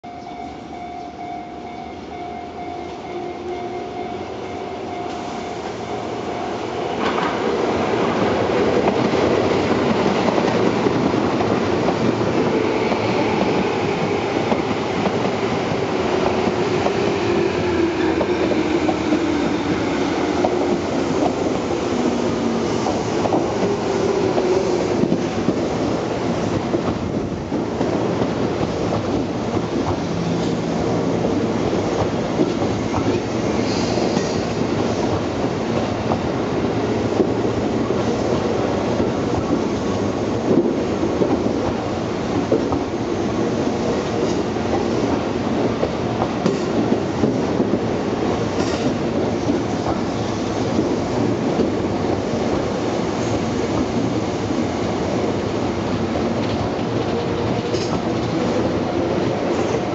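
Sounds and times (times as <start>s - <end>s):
train wheels rumbling on rails: 0.3s - 59.9s
clicking from rail joints: 48.5s - 50.1s, 56.4s - 58.6s.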